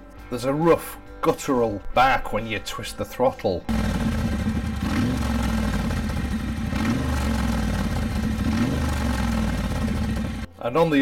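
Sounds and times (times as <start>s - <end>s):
motorcycle engine idling and revving: 3.7s - 10.5s.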